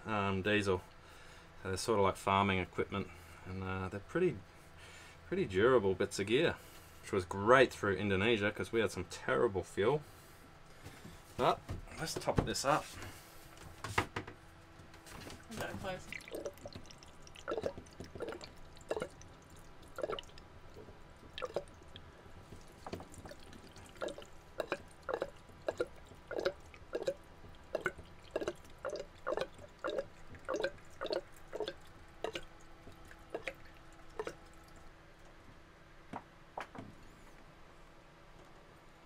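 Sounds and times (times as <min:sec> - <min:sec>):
liquid plops being poured: 0:16.0 - 0:34.9.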